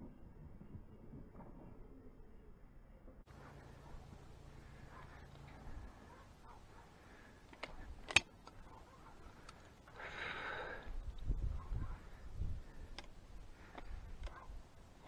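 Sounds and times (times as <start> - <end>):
sharp click: 7.5 - 8.6.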